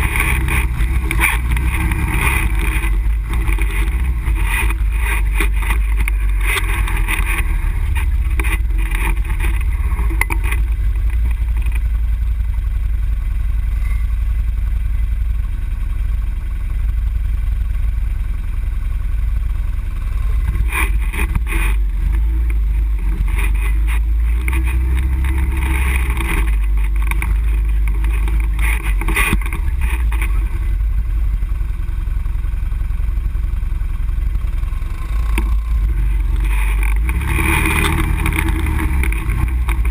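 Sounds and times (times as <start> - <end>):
knocks and clatters from bumps: 0.0 - 11.9, 20.4 - 30.4, 35.0 - 39.9
atv engine rumbling: 0.0 - 39.9.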